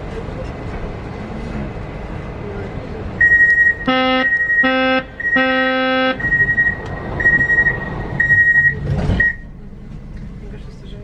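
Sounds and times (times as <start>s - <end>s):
high beep: 3.2s - 9.5s
low buzzing warning tone: 3.6s - 9.4s.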